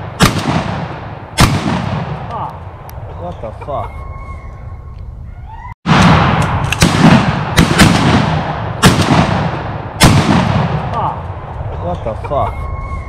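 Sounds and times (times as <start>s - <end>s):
shotgun shots echoing: 0.0s - 2.5s, 5.9s - 11.3s.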